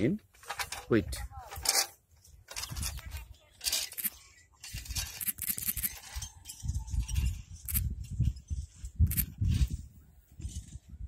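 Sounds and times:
scrapes and clinks: 0:00.4 - 0:09.3
fingers rubbing phone microphone: 0:06.9 - 0:09.8.

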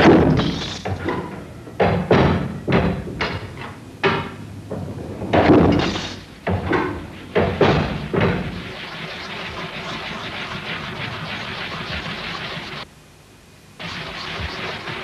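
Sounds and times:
loud ringing knocks: 0:00.0 - 0:08.6.

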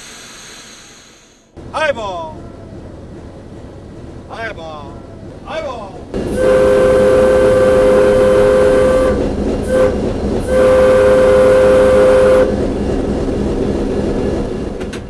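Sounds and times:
low rumble of train: 0:00.0 - 0:15.0
locomotive whistle blasts: 0:06.3 - 0:12.6.

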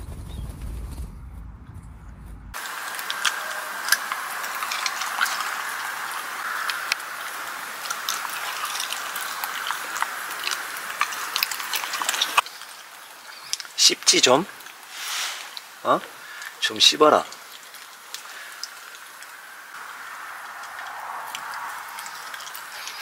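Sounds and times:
dog crunching food in metal bowl: 0:02.6 - 0:13.9, 0:20.6 - 0:23.0
steady hiss: 0:02.6 - 0:23.0.

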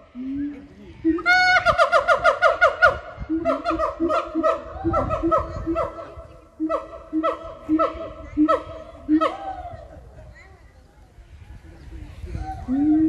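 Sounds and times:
gibbons whooping and hooting: 0:01.0 - 0:10.0.

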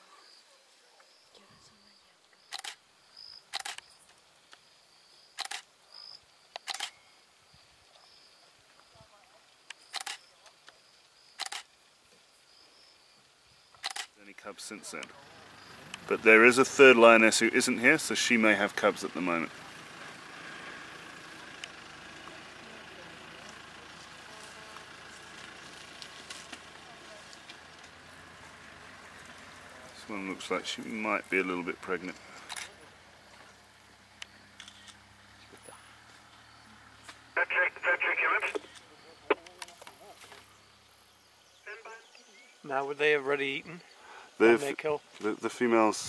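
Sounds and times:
camera shutter clicks: 0:02.5 - 0:02.8, 0:03.5 - 0:03.8, 0:05.4 - 0:05.7, 0:06.6 - 0:07.0, 0:11.4 - 0:11.7, 0:13.8 - 0:14.1
vehicle engine idling: 0:14.9 - 0:41.3.

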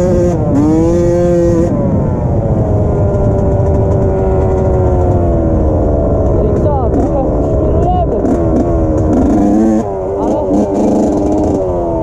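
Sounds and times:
motocross bike engine revving: 0:00.0 - 0:01.8, 0:06.8 - 0:12.0
wind rumble on microphone: 0:00.0 - 0:12.0.

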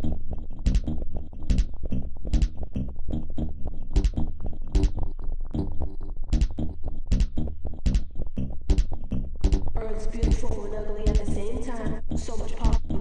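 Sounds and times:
electronic clicking hits: 0:00.0 - 0:02.6, 0:03.9 - 0:11.4
low electronic thump: 0:00.7 - 0:02.8, 0:03.9 - 0:10.5, 0:11.1 - 0:11.4, 0:12.6 - 0:13.0.

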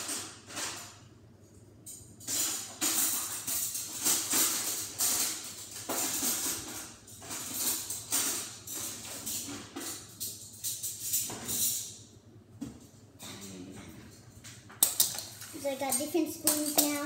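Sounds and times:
metal cutlery jingling in drawer: 0:01.8 - 0:12.0, 0:14.8 - 0:17.0.

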